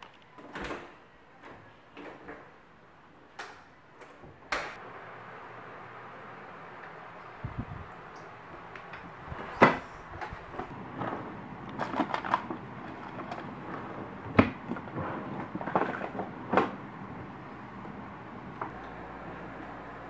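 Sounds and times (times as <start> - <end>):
objects clicking and clattering: 8.8 - 16.8.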